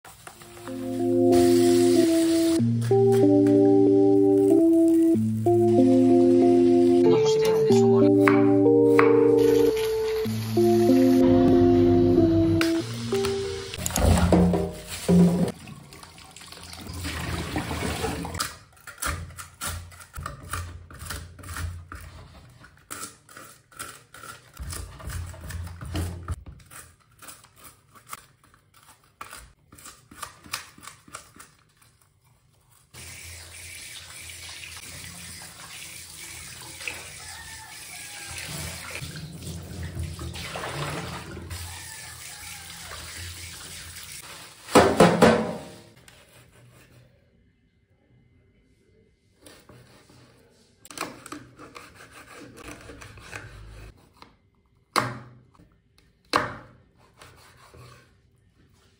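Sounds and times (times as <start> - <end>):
tap water running into sink: 12.9 - 18.4, 33.0 - 45.8.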